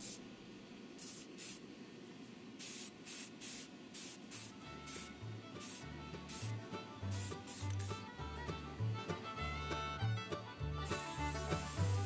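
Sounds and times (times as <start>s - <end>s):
spray paint hissing bursts: 0.0s - 0.2s, 1.0s - 1.6s, 2.6s - 8.1s, 10.8s - 12.0s
faint background music: 4.3s - 12.0s.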